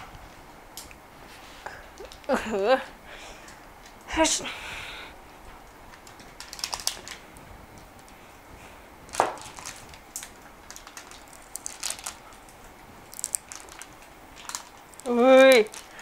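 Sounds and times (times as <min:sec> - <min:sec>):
paper rustling: 0:09.1 - 0:12.5.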